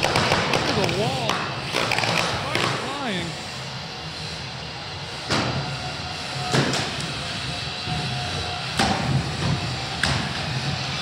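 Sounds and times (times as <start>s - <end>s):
steady background noise: 0.0s - 11.0s.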